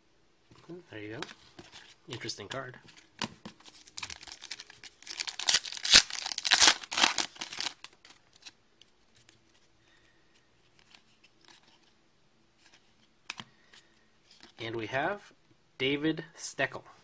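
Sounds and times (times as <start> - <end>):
faint card handling: 0.5 - 12.0
wrapper tearing and crinkling: 3.8 - 8.5.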